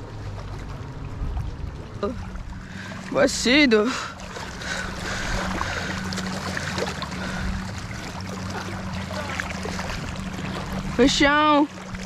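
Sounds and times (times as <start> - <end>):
boat mechanical hum: 0.0 - 12.0
water noise: 0.0 - 12.0
wind: 0.0 - 12.0.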